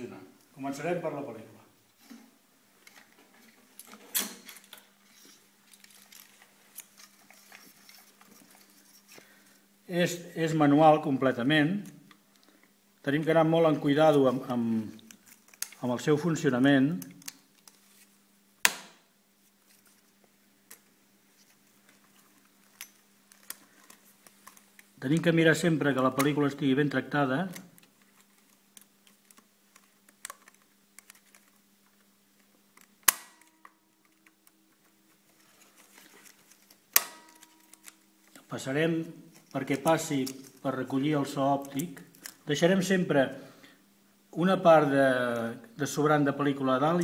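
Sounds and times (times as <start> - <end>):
faint steady hum: 0.0 - 47.0
projector levers clicking: 36.9 - 38.0.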